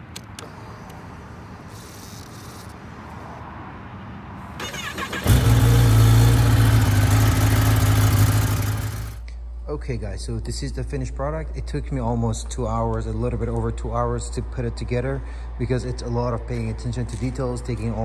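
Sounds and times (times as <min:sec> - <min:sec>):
loud motorcycle engine idling: 0:04.6 - 0:09.2
motorcycle engine starting: 0:04.6 - 0:09.2.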